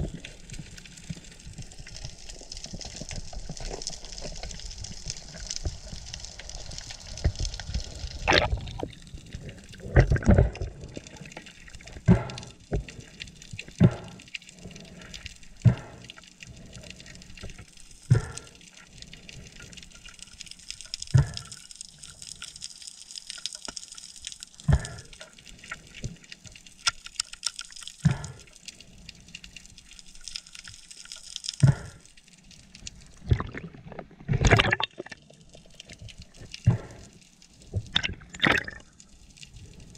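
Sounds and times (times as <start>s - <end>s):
dull knocks and gurgles: 7.2s - 14.8s, 15.4s - 18.8s, 21.0s - 21.6s, 24.6s - 25.4s, 28.0s - 28.6s, 31.5s - 32.1s, 33.1s - 38.9s.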